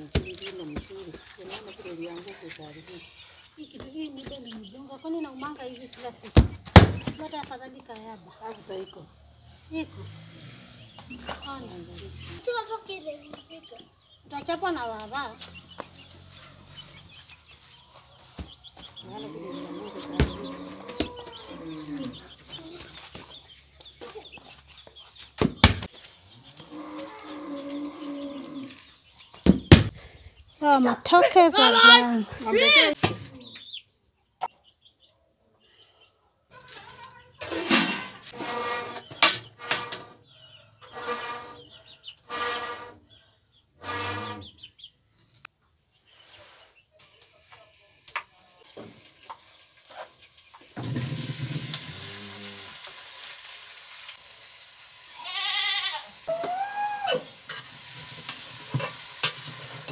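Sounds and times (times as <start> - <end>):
small birds chirping: 0.0 - 37.5, 40.2 - 42.4, 43.0 - 50.8.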